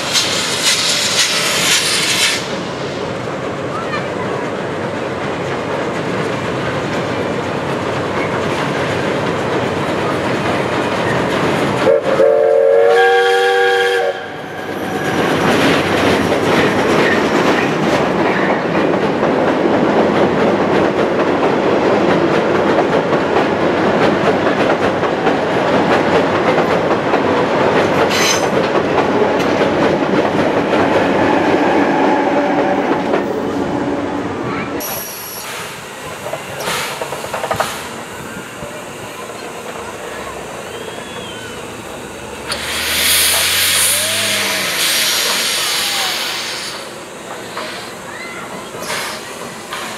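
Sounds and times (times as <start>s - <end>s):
wheels clickety-clack: 0.0s - 12.2s, 14.6s - 31.1s, 34.8s - 38.0s, 47.2s - 49.9s
train rumbling on bridge: 0.0s - 49.9s
train whistle: 11.8s - 14.8s, 31.2s - 33.0s, 40.7s - 41.6s.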